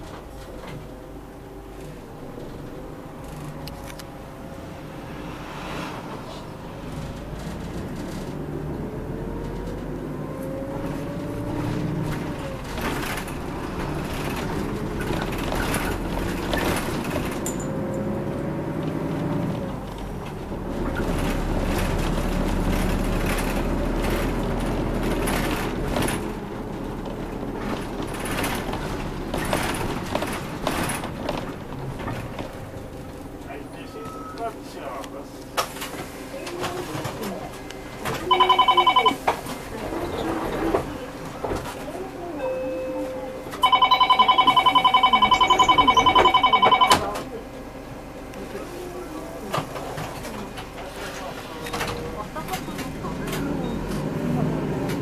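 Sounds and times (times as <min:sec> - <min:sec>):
bus engine rumble and whine: 0:00.0 - 0:55.0.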